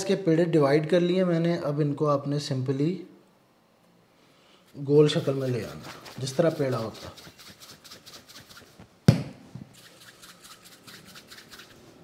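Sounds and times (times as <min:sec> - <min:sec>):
hands rubbing dough: 0:04.7 - 0:08.9, 0:09.6 - 0:12.0
sharp knock: 0:09.1 - 0:09.4.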